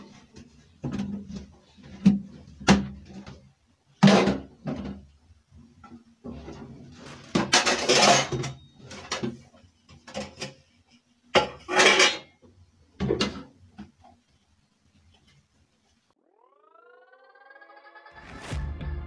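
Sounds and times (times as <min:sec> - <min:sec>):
dishes clattering into a rack: 0:04.0 - 0:05.0, 0:07.2 - 0:09.4, 0:11.3 - 0:12.4.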